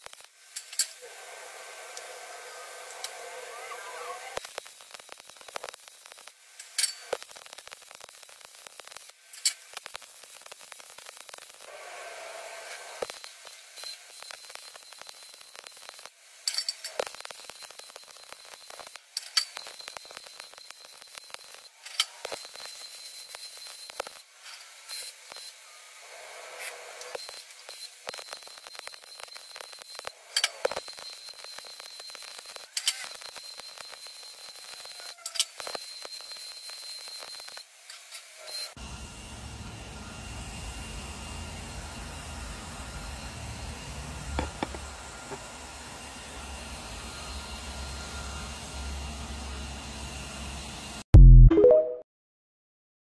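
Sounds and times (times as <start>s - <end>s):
welding arc crackling: 0.0s - 38.0s.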